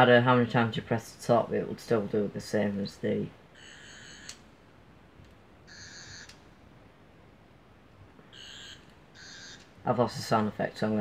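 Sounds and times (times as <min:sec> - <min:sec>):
faint electronic toy tone: 0:03.6 - 0:04.4, 0:05.7 - 0:06.4, 0:08.3 - 0:09.7.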